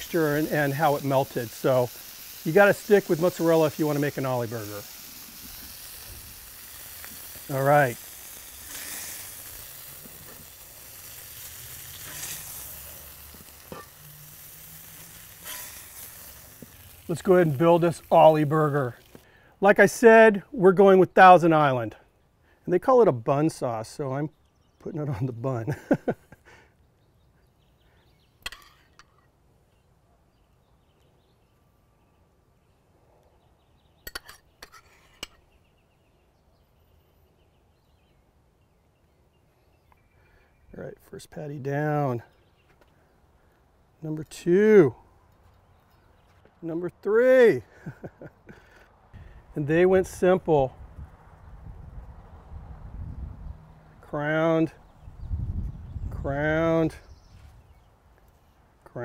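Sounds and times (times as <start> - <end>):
patties sizzling on griddle: 0.0 - 20.1
metal spatula scraping griddle: 0.1 - 18.4, 34.1 - 35.4.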